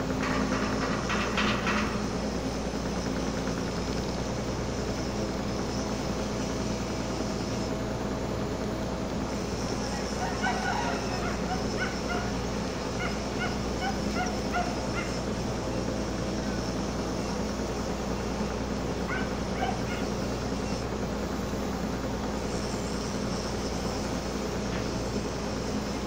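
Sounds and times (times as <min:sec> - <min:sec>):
ship engine humming: 0:00.0 - 0:26.0.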